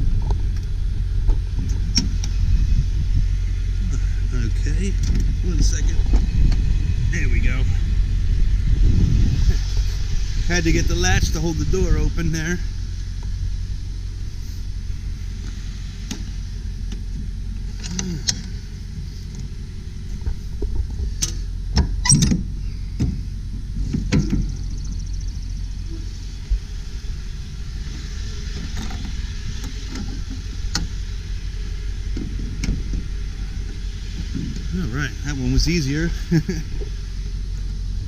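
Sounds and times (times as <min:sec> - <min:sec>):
steady low rumble: 0:00.0 - 0:38.0
truck cargo door clanking open: 0:21.2 - 0:23.2, 0:23.8 - 0:24.6.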